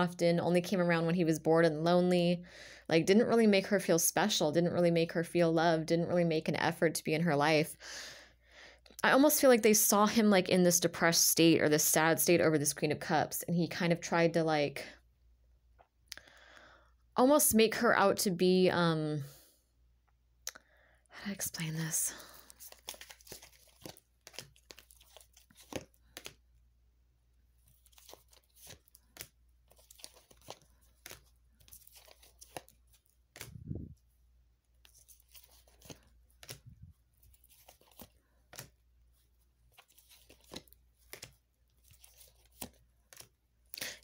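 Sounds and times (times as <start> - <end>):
cards clicking and sliding: 22.5 - 26.4, 27.6 - 33.6, 34.8 - 38.8, 39.7 - 43.8.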